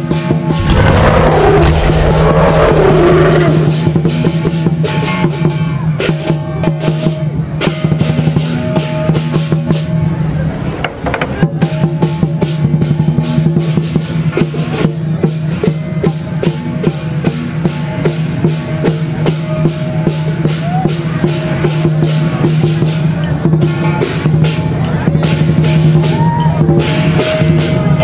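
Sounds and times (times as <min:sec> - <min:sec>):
large drum beating: 0:00.4 - 0:04.8.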